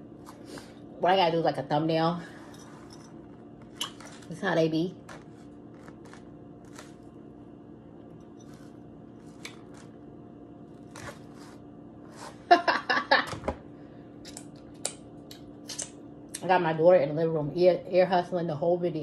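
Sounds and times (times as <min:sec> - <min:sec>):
low hum: 0:00.0 - 0:19.0
woman's voice: 0:01.0 - 0:02.4, 0:04.3 - 0:05.0, 0:16.4 - 0:19.0.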